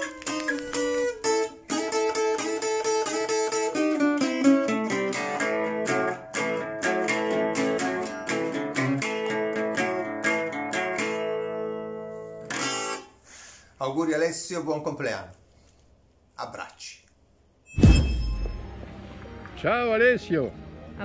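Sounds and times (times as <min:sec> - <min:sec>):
acoustic guitar picking: 0:00.0 - 0:13.1.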